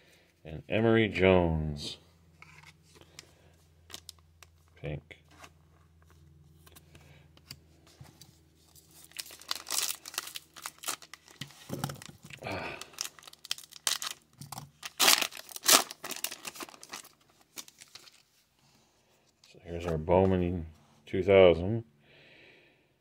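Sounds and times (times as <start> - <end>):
foil wrapper tearing and crinkling: 8.8 - 18.3.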